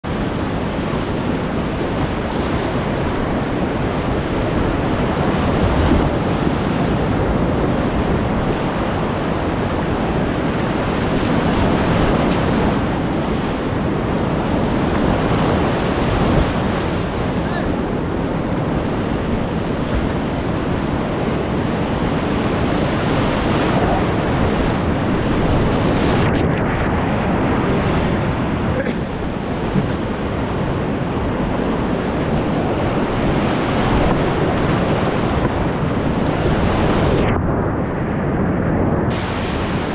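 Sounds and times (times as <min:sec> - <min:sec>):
whitewater rapids rushing: 0:00.0 - 0:26.3, 0:39.1 - 0:39.9
wind buffeting microphone: 0:00.0 - 0:39.9.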